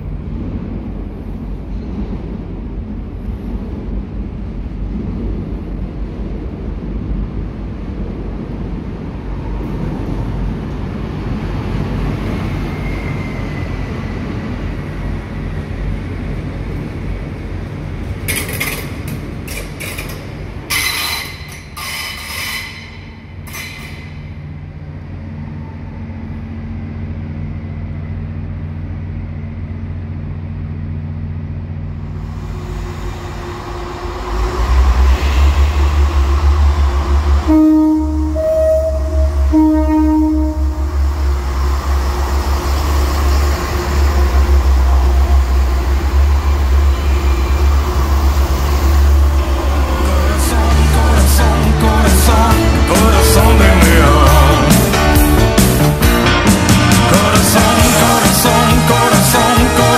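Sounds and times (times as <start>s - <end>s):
low steady train hum: 0.0s - 59.9s
train wheels rumbling on rail: 0.0s - 59.9s
faint wheel squeal: 12.7s - 13.9s, 20.7s - 24.2s.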